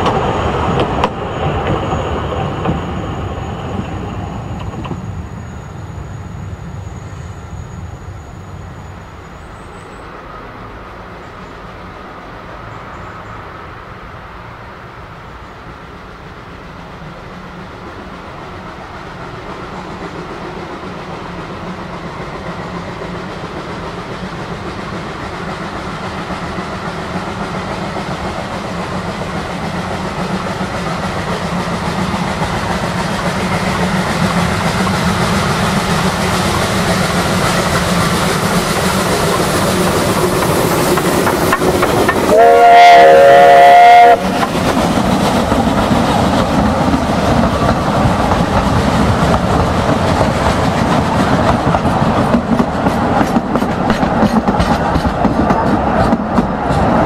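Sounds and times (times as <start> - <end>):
steam train running: 0.0 - 57.0
steam whistle blast: 42.2 - 44.4.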